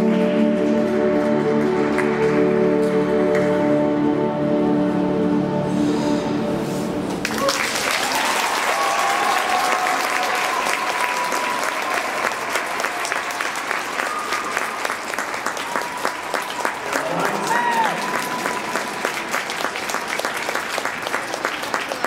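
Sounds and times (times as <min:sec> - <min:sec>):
audience applause: 0:07.2 - 0:22.0.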